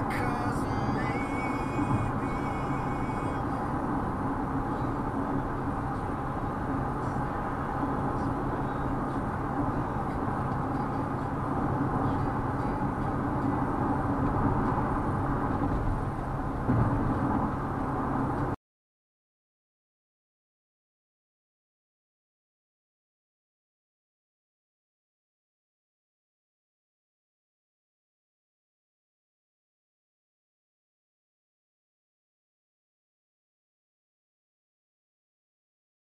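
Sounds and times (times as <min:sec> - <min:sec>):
car road and engine noise: 0:00.0 - 0:18.6.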